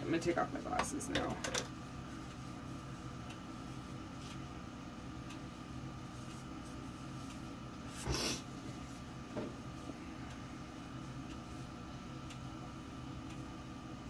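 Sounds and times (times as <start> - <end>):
steady background hum: 0.0 - 14.0
facial wipe rubbing skin: 6.1 - 9.0.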